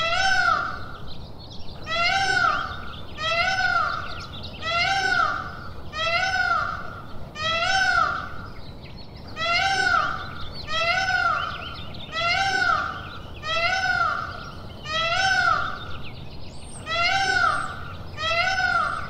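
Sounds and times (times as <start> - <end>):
peacock calling: 0.0 - 1.1, 1.8 - 8.6, 9.3 - 16.0, 16.7 - 19.0.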